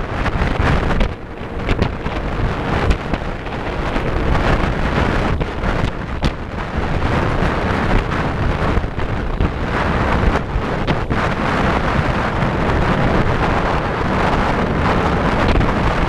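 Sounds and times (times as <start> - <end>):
boat engine: 0.0 - 16.0
water rushing past boat: 0.0 - 16.0
wind buffeting microphone: 0.0 - 16.0.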